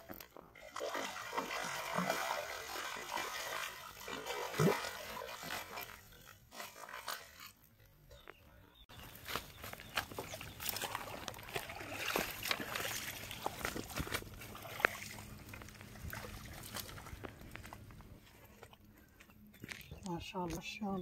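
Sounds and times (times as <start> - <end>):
water splashing: 0.0 - 7.5, 9.7 - 17.8
fish thrashing and slapping: 0.5 - 7.6, 9.0 - 18.8.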